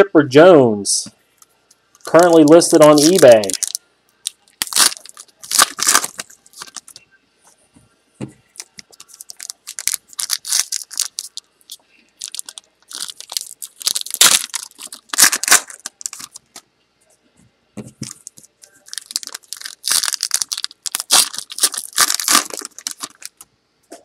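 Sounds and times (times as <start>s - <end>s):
card pack wrappers crinkling and tearing: 2.0s - 7.0s, 8.6s - 16.6s, 18.0s - 23.4s.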